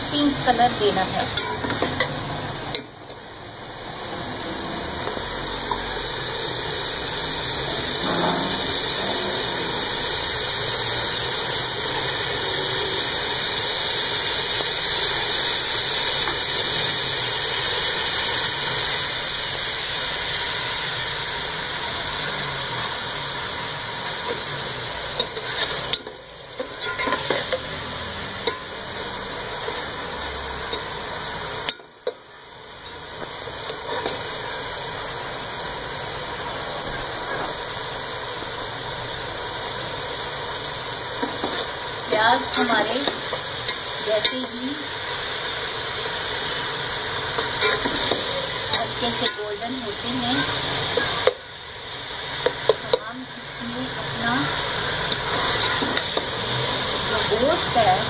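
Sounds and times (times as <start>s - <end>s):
onions sizzling in hot oil: 0.0s - 58.0s
metal spatula scraping pot: 7.9s - 10.1s, 25.2s - 27.7s, 47.4s - 49.8s.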